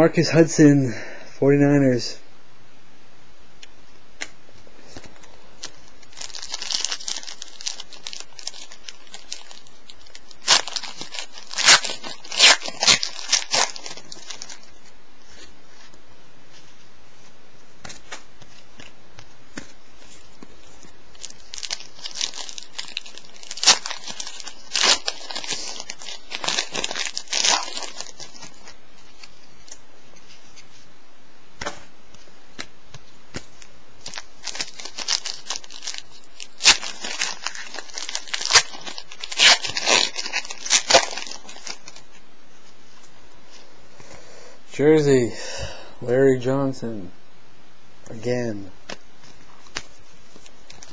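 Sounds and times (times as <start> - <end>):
plastic wrapper tearing and crinkling: 5.6 - 14.8, 19.6 - 29.8, 33.3 - 42.2, 48.9 - 50.9.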